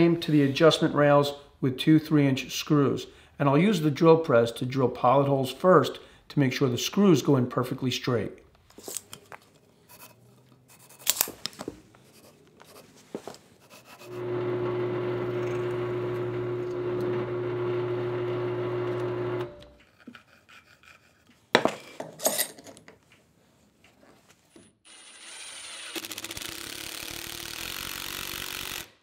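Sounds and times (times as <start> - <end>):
drill press motor running: 14.1 - 19.7.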